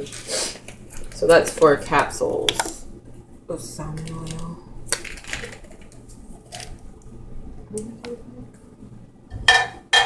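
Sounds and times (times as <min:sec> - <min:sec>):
dishware clinking: 0:09.4 - 0:10.0.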